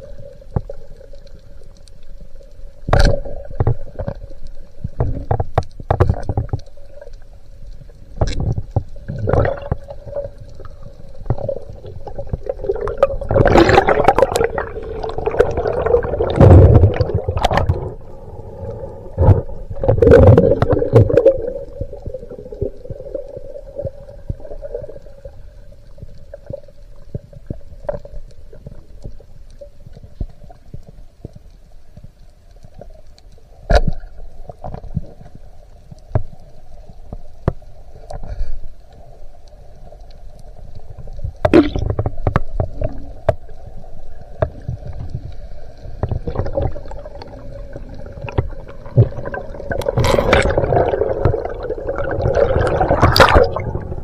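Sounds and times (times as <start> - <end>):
steady underwater hum: 0.0 - 54.0
gurgling rushing water: 8.2 - 29.0, 40.8 - 54.0.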